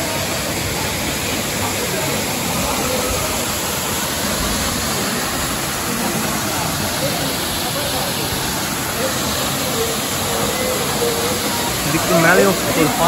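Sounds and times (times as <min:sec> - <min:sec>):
waterfall rushing into pool: 0:00.0 - 0:13.0.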